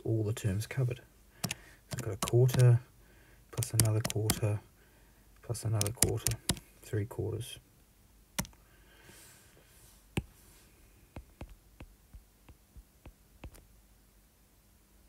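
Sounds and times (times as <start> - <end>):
stylus tapping on tablet screen: 3.6 - 4.5, 5.8 - 6.6, 11.1 - 13.7.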